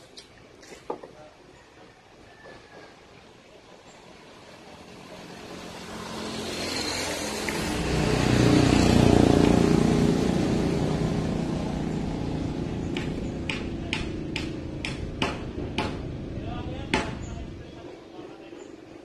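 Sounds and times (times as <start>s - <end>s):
vehicle engine passing by: 4.2s - 17.9s
sharp tap: 12.9s - 16.0s, 17.0s - 17.3s.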